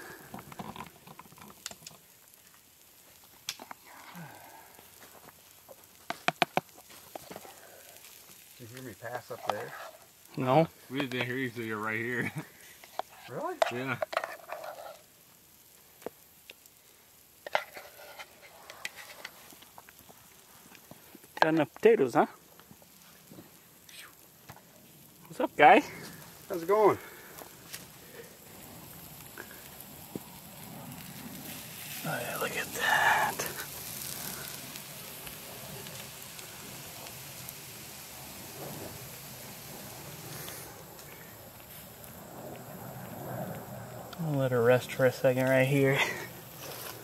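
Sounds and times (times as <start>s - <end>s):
fire crackles: 0.0s - 47.0s
steak drippings sizzling on coals: 0.0s - 47.0s
spatula scraping pot: 9.3s - 10.1s.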